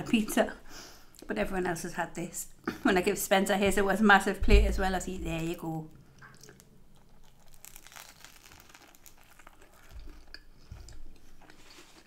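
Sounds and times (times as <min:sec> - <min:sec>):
soft low thumps: 0:03.7 - 0:05.5
crackling tearing of crisp pastry: 0:06.3 - 0:10.6.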